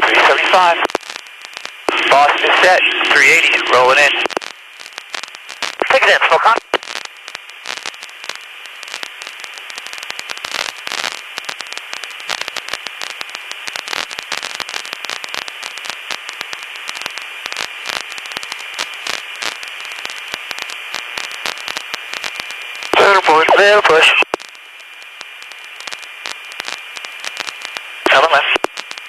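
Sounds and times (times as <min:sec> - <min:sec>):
crackling clicks: 0:00.0 - 0:29.0
intercom static hiss: 0:00.0 - 0:29.0.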